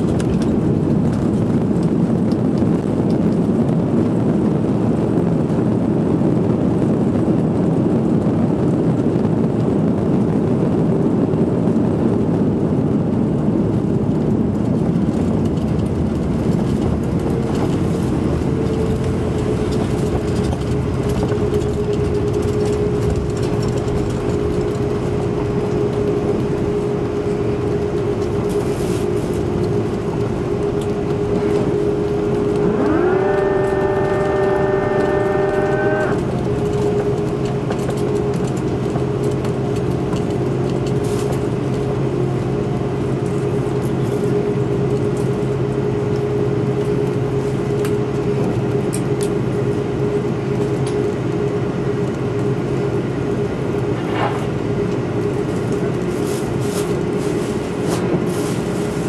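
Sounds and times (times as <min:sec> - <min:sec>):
jet engines whining: 0:23.4 - 0:37.7.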